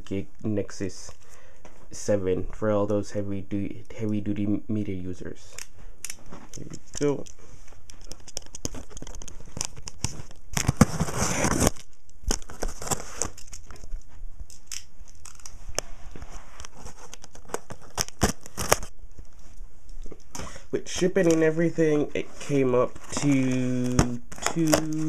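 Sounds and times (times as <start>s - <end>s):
cardboard box rustling and crinkling: 8.7s - 14.0s.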